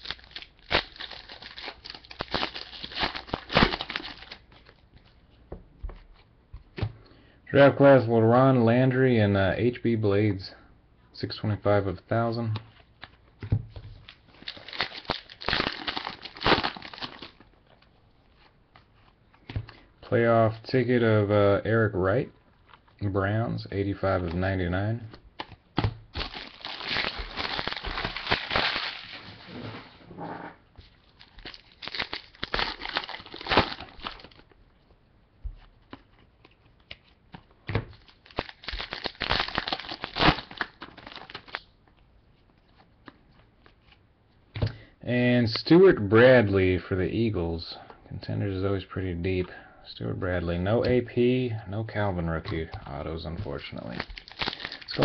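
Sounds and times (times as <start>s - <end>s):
foil wrapper crinkling and tearing: 0.0s - 4.8s, 14.0s - 17.8s, 25.4s - 29.3s, 30.9s - 34.6s, 37.9s - 41.8s, 53.4s - 55.0s.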